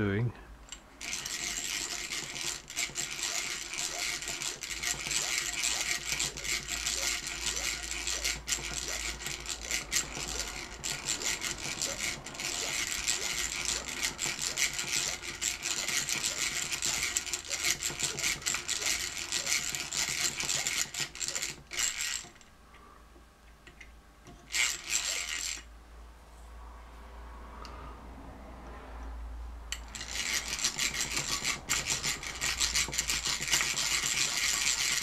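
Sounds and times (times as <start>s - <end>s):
hand drill clicking: 0.7s - 22.5s, 23.8s - 25.7s, 29.7s - 35.0s
drill bit grinding metal: 1.0s - 22.4s, 24.5s - 25.6s, 29.8s - 35.0s.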